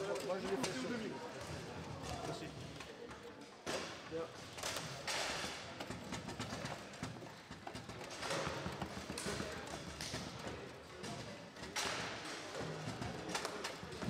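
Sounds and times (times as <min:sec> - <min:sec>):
foosball rods clacking: 0:04.6 - 0:10.4.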